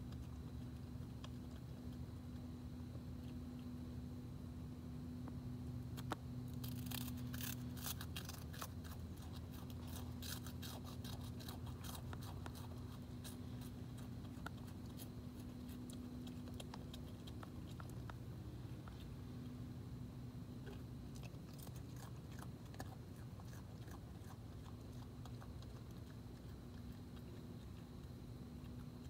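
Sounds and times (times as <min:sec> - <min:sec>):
animal crunching and chewing food: 0:00.0 - 0:29.0
low hum: 0:00.0 - 0:29.0.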